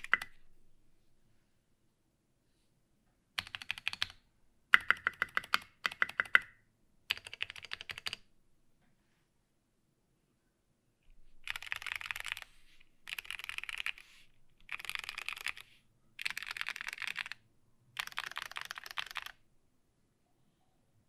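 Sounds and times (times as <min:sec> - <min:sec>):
fast typing on mechanical keyboard: 0:00.0 - 0:00.3, 0:03.4 - 0:04.2, 0:04.8 - 0:06.5, 0:07.1 - 0:08.2, 0:11.4 - 0:12.5, 0:13.1 - 0:14.0, 0:14.6 - 0:17.4, 0:18.0 - 0:19.4.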